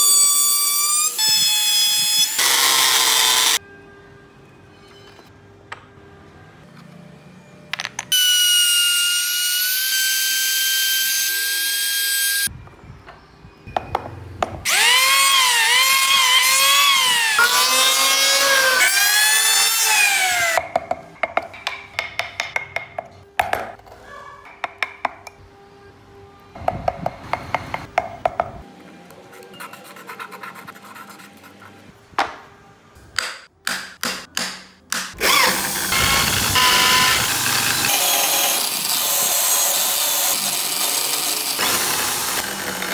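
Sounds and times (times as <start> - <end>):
power tool motor whine: 2.2 - 3.6, 35.2 - 42.9.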